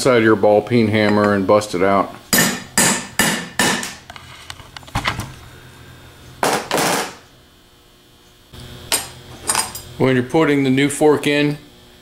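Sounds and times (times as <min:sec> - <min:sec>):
hammer striking metal: 0:02.3 - 0:04.0.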